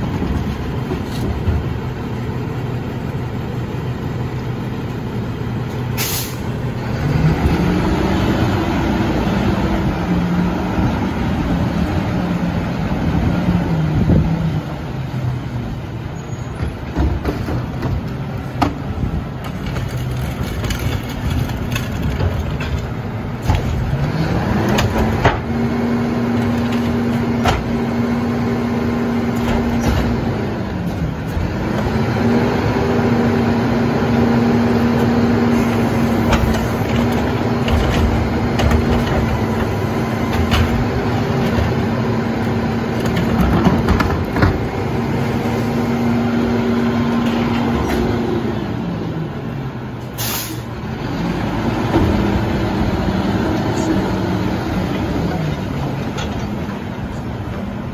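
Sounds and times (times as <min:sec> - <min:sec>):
garbage truck engine running: 0:00.0 - 0:57.9
short hiss: 0:06.0 - 0:06.4, 0:50.2 - 0:50.7.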